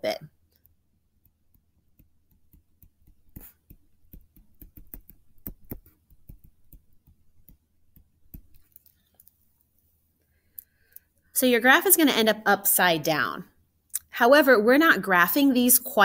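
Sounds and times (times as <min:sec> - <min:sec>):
soft clicks and taps of writing: 0:00.5 - 0:09.4.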